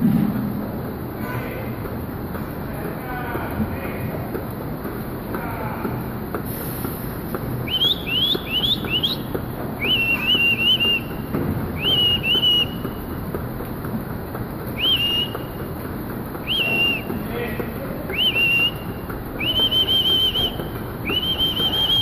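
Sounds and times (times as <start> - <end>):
milking machinery hum and clatter: 0.0 - 22.0
high whistles: 7.6 - 13.1, 14.7 - 15.6, 16.4 - 17.3, 18.1 - 22.0.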